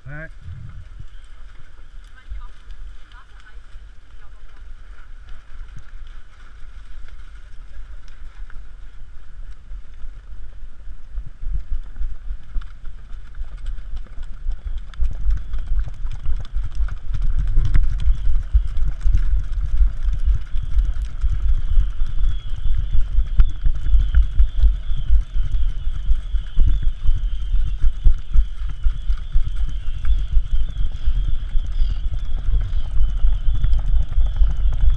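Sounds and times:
wind buffeting microphone: 0:00.0 - 0:03.6, 0:10.7 - 0:34.9
hooves pattering on sand: 0:00.0 - 0:34.9.

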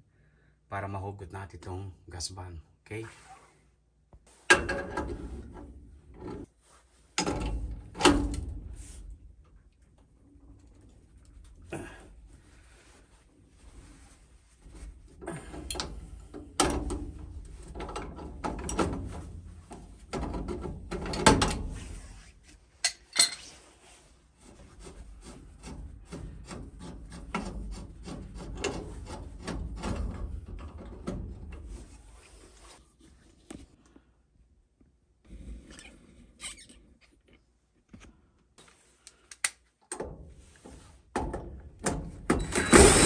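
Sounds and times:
wrench scraping and knocking metal: 0:24.7 - 0:31.6.

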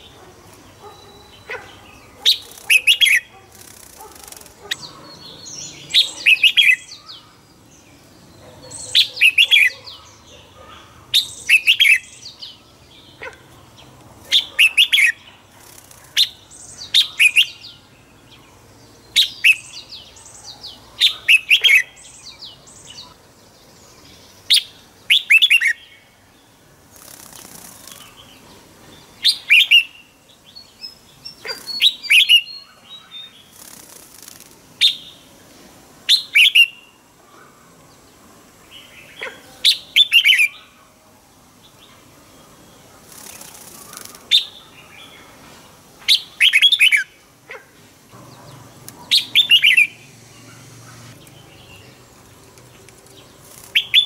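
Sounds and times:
bulbul singing: 0:00.8 - 0:10.5, 0:11.1 - 0:13.5, 0:48.1 - 0:54.0.

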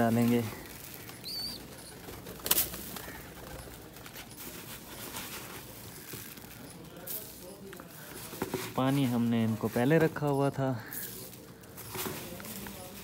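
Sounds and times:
pigeon wings flapping: 0:00.0 - 0:06.5.

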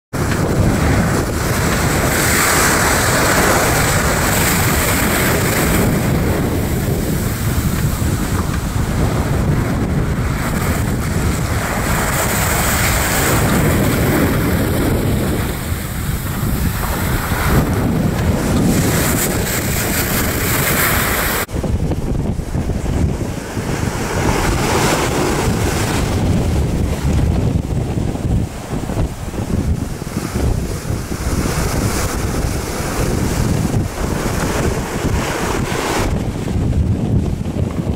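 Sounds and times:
wind buffeting microphone: 0:00.1 - 0:37.9
waves rushing: 0:00.2 - 0:37.9.

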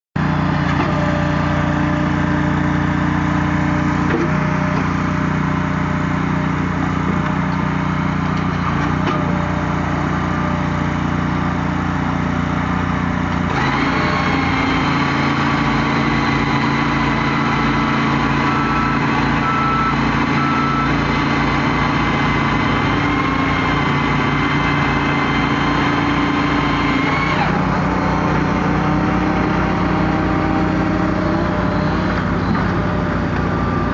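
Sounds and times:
small gasoline engines running: 0:00.2 - 0:33.9
high-pitched machine whine: 0:24.3 - 0:32.0.

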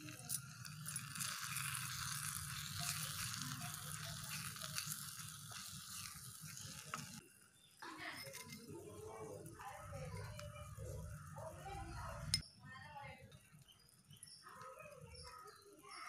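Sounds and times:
wooden spoon stirring: 0:00.0 - 0:07.2
onions sizzling in oil: 0:00.0 - 0:12.4.

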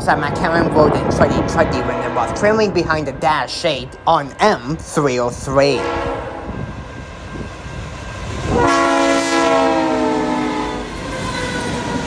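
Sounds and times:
train rumble: 0:00.0 - 0:12.0
locomotive air horn blast: 0:01.4 - 0:02.6, 0:05.8 - 0:06.5, 0:08.5 - 0:10.9.

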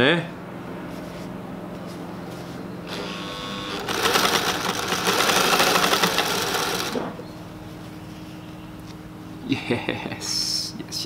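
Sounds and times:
sewing machine stitching: 0:02.9 - 0:07.1.

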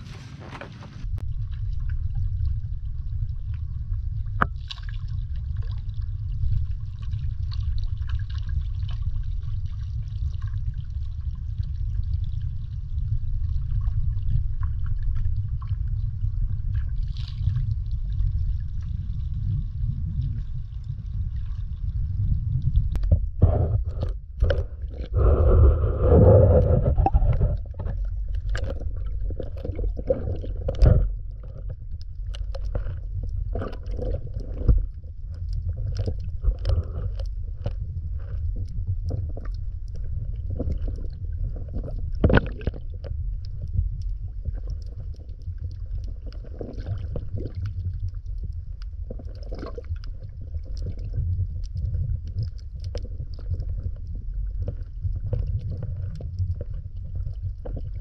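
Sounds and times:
muffled underwater rumble: 0:00.0 - 0:58.0
underwater clicks and pops: 0:22.9 - 0:58.0.

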